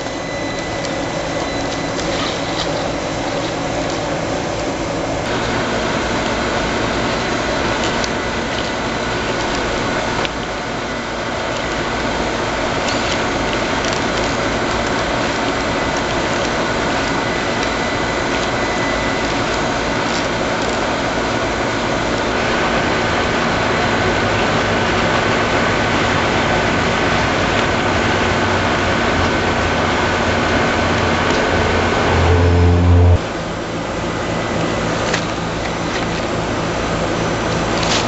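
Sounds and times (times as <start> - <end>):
rc car motor whining: 29.1 - 33.2.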